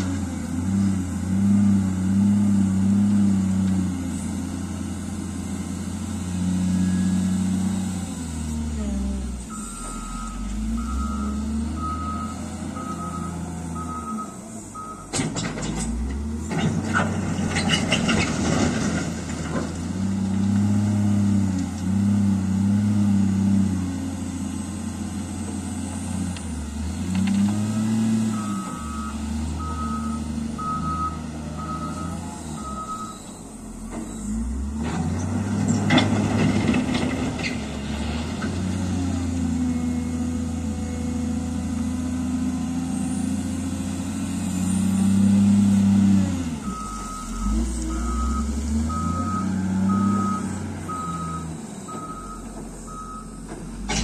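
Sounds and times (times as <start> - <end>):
loader diesel engine revving: 0.0 - 54.0
reversing alarm beeping: 9.5 - 15.1, 28.3 - 34.7, 46.6 - 53.5.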